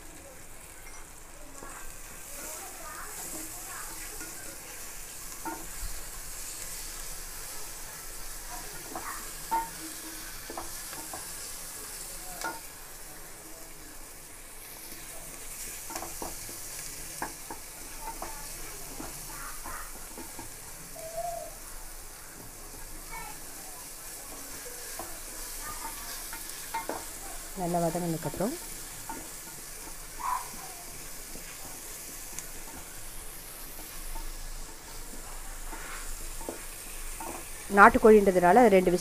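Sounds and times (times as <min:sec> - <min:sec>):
onions sizzling in oil: 0:00.0 - 0:39.0
spatula scraping and tapping pot: 0:00.8 - 0:11.6, 0:12.4 - 0:12.7, 0:14.9 - 0:21.0, 0:24.2 - 0:38.1.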